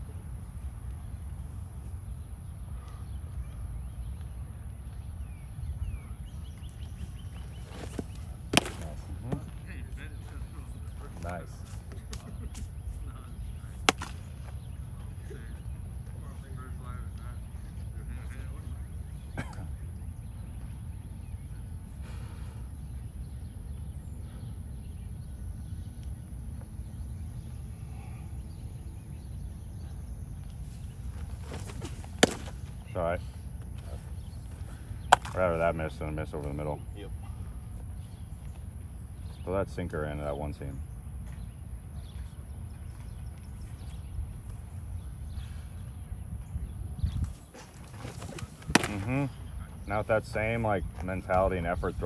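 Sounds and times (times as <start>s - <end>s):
faint bird chirps: 0.8s - 50.8s
wind on microphone: 45.4s - 49.8s.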